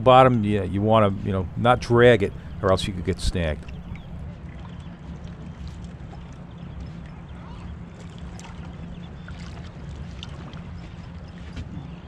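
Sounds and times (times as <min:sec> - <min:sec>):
outboard motor idling: 0:00.0 - 0:04.2
water washing around boat: 0:00.0 - 0:12.0.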